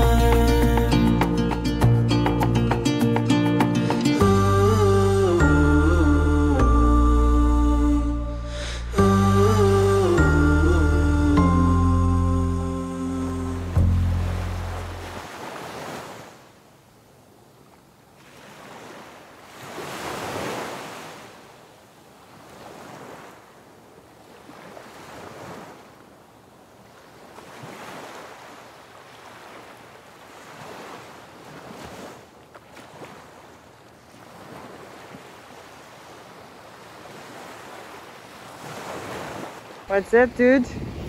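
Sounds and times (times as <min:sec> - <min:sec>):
small waves washing on beach: 0:12.9 - 0:41.0
wind on microphone: 0:40.0 - 0:41.0.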